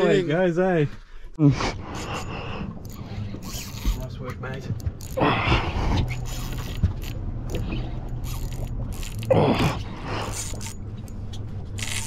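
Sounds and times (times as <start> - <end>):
steady low hum: 1.0 - 12.0
fishing reel gears ticking: 6.2 - 9.3, 10.3 - 10.8, 11.8 - 12.0.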